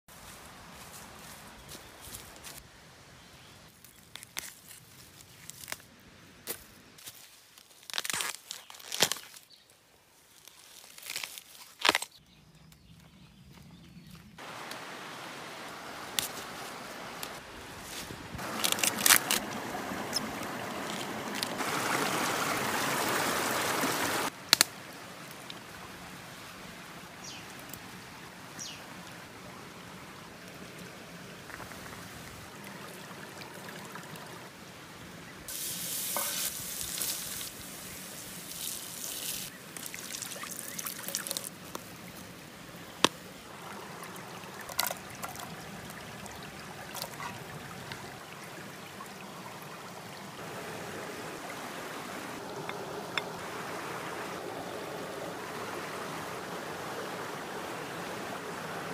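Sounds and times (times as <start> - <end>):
hands handling bamboo shoots: 3.8 - 5.9, 10.3 - 12.2, 16.1 - 21.7
water pouring and trickling: 14.4 - 24.3, 25.2 - 58.9.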